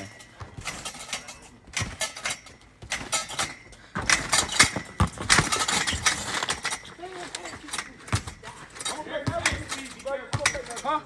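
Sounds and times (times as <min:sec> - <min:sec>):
metal springs jangling and squeaking: 0:00.0 - 0:11.0
trampoline mat thumps: 0:00.4 - 0:06.8.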